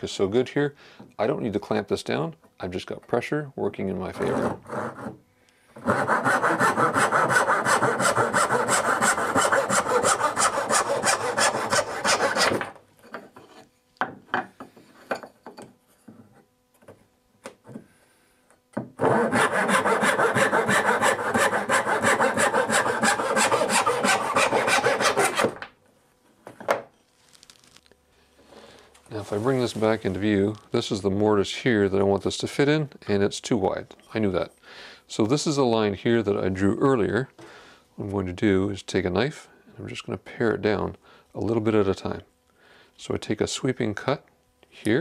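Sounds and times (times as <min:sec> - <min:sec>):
hand saw cutting wood: 0:04.0 - 0:05.2, 0:05.8 - 0:12.8, 0:19.0 - 0:25.6.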